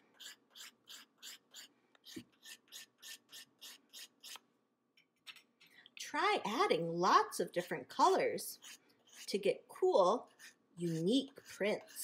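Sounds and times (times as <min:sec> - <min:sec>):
spoon scraping chalk: 0:00.0 - 0:04.4, 0:07.5 - 0:12.0.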